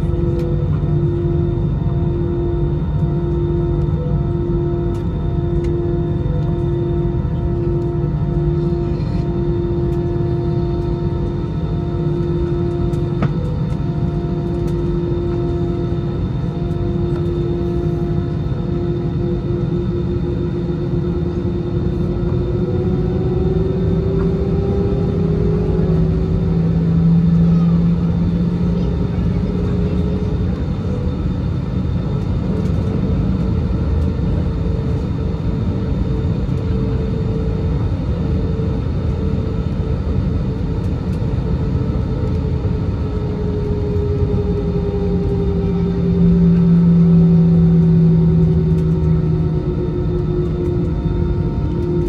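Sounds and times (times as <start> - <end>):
aircraft cabin engine hum: 0.0 - 52.0.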